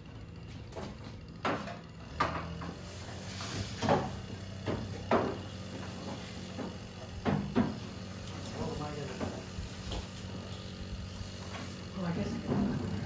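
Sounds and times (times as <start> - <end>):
sharp knocks and clunks: 0.5 - 2.8, 3.7 - 7.9.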